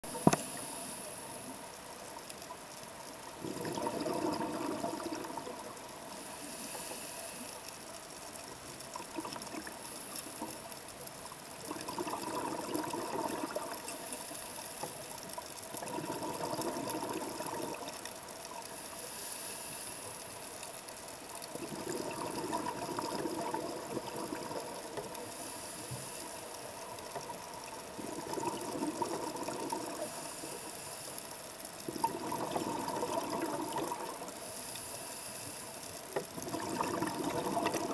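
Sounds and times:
regulator air hiss: 0.1 - 1.6, 6.1 - 7.7, 18.7 - 20.5, 25.2 - 26.7, 34.4 - 35.9
gurgling rush of bubbles: 3.4 - 5.8, 11.6 - 14.1, 15.7 - 18.0, 21.4 - 25.2, 27.6 - 30.3, 31.8 - 34.4, 36.3 - 37.9
diver breathing through regulator: 6.1 - 7.6.

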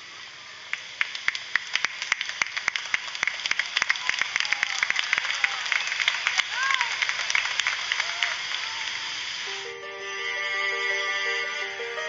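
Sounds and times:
light hiss: 0.0 - 12.0
crowd clapping: 0.7 - 9.3.

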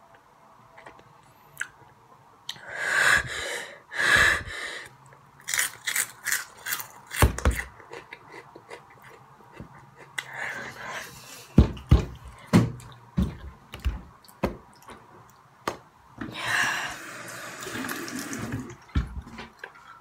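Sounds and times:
crunching and chewing snack: 5.4 - 10.4.

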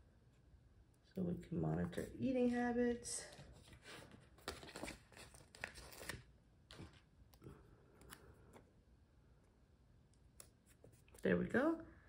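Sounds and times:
paper rustling: 3.3 - 7.1.

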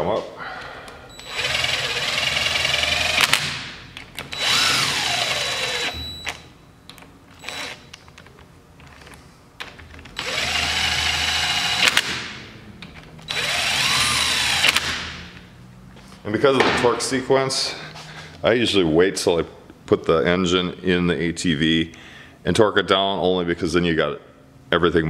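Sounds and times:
cordless drill motor whine: 1.2 - 3.3, 4.3 - 6.1, 7.4 - 7.8, 10.2 - 12.0, 13.3 - 14.7.

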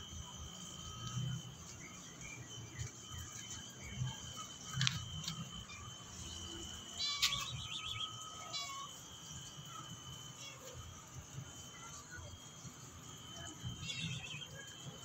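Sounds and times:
steady high tone: 0.0 - 15.0
faint bird chirps: 0.8 - 10.8, 13.2 - 15.0
chirping trill: 5.5 - 9.6, 13.4 - 14.8.

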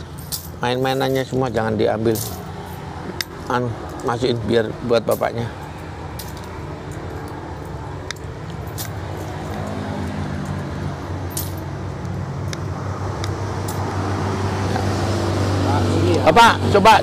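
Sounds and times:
vehicle engine humming: 0.0 - 17.0
small objects clicking and jangling: 0.1 - 4.2, 5.0 - 10.7, 11.3 - 12.6.

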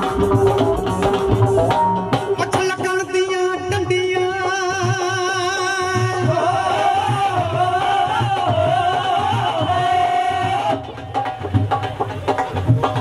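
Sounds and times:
dholak drum beat: 0.0 - 13.0
keyboard: 0.0 - 13.0.

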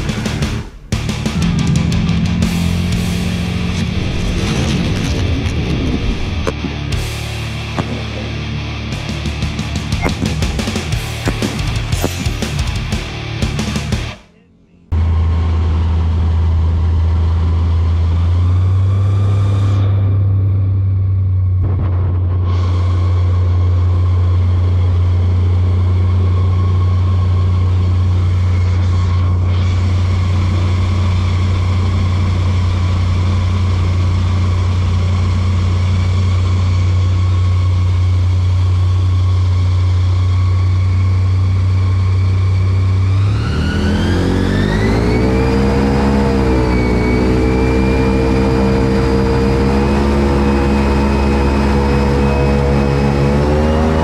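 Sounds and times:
airboat engine and propeller: 0.0 - 13.7, 15.0 - 20.8, 22.5 - 54.0.

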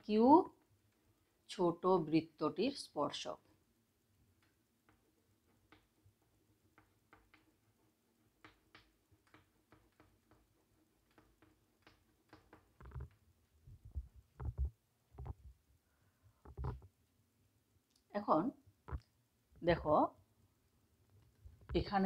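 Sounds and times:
chalk tapping on blackboard: 4.4 - 13.2, 13.9 - 15.4
dull thumps: 11.4 - 15.6.

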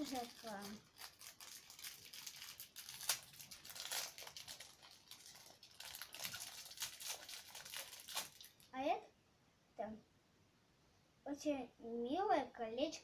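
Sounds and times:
packaging crinkling and rustling: 0.0 - 8.7
sharp packaging crackle: 0.0 - 8.7.

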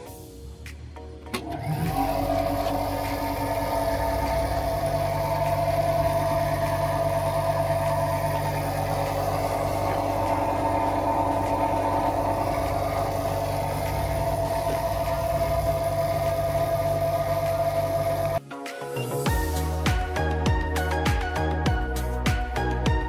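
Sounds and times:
vibrating sieve motor hum: 1.3 - 18.4.

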